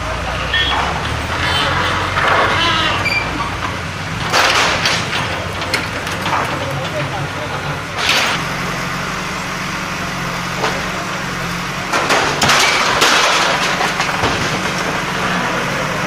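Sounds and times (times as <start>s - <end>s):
diesel engine running: 0.0s - 16.0s
metal roofing sheets crashing: 0.7s - 8.4s, 11.8s - 15.6s.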